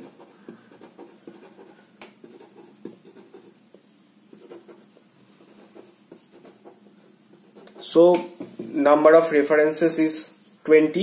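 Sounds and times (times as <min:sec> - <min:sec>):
marker scratching on paper: 0:00.0 - 0:07.9.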